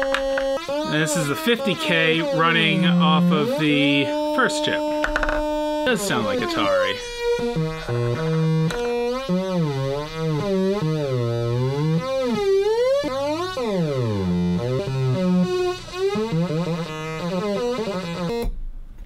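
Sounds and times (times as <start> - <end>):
electronic tone gliding in pitch: 0.0 - 15.1.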